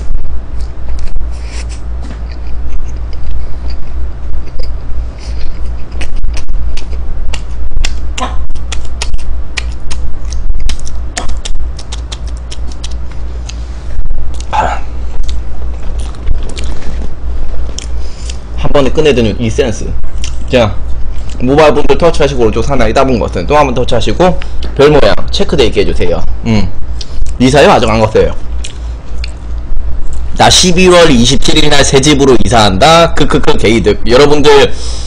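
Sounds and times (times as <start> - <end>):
low electrical hum: 0.0 - 35.0
mouth chewing food: 0.6 - 13.6, 14.3 - 14.6, 15.2 - 17.0.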